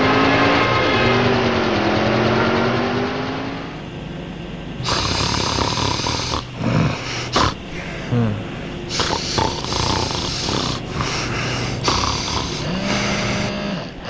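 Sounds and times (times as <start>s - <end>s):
man snoring: 4.8s - 14.0s.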